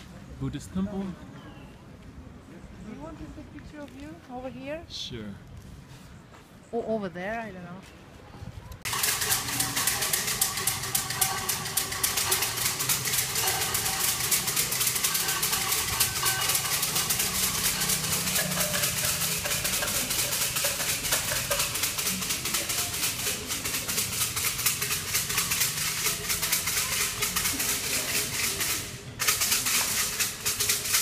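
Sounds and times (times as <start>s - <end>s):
faint murmuring voices: 7.8s - 31.0s
wooden sticks rattling in cups: 8.8s - 31.0s.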